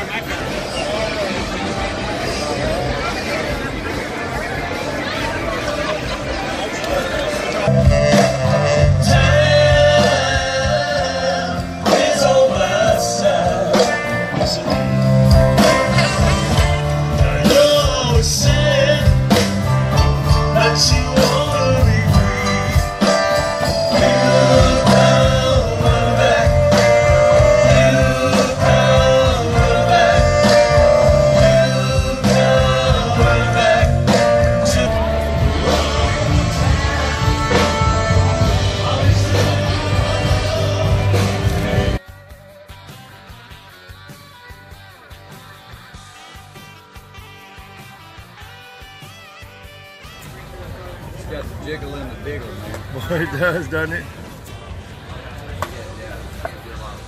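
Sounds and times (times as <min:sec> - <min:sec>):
live blues-rock band playing: 0:00.0 - 0:55.6
man singing: 0:07.6 - 0:42.0
saxophone: 0:22.1 - 0:43.6, 0:45.6 - 0:51.0.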